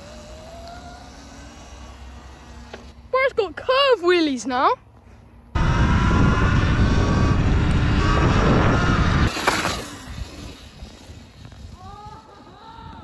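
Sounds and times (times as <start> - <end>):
electric motor whine: 0.0 - 3.2, 5.6 - 13.0
wind rushing over microphone: 5.5 - 13.0.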